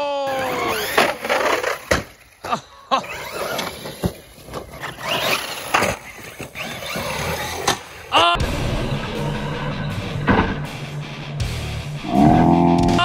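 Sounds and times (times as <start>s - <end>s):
rock music with heavy beat: 8.2s - 13.0s.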